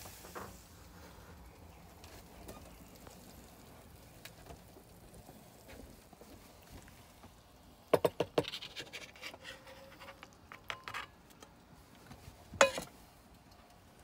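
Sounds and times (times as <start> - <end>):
eggs scraping off pan: 8.4 - 11.1.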